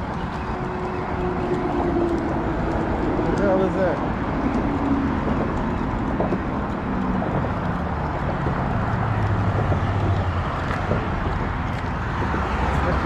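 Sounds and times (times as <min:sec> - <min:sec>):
low traffic rumble: 0:00.0 - 0:13.0
vehicle engine passing: 0:00.0 - 0:13.0.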